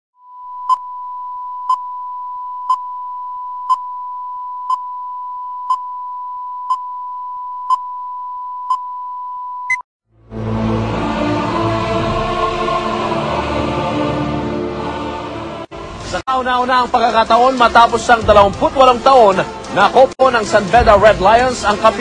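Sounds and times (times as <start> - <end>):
music: 10.1 - 22.0.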